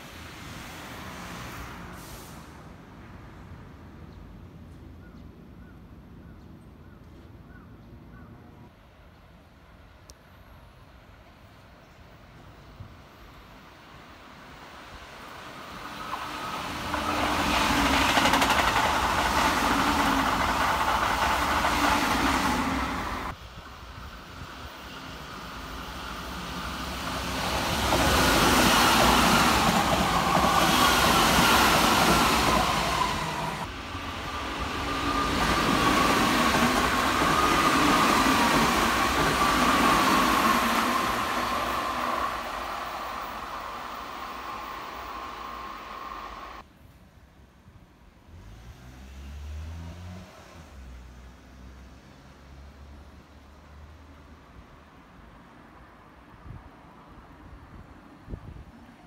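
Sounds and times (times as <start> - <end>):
train wheels rumbling and rattling: 15.8 - 46.6.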